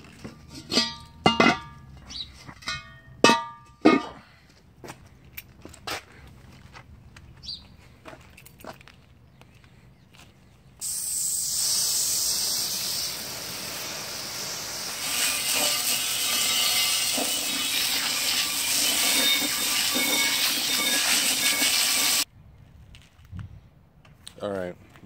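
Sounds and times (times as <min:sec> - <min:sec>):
water jet splashing on metal rim: 0:10.8 - 0:22.2.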